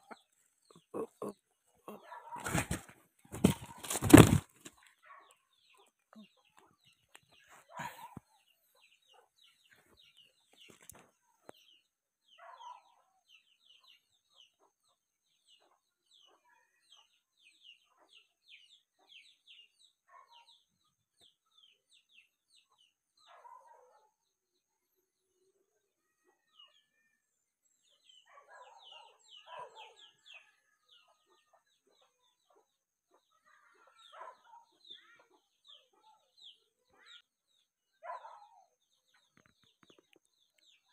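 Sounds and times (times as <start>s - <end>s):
rooster clucking: 0.0s - 4.4s.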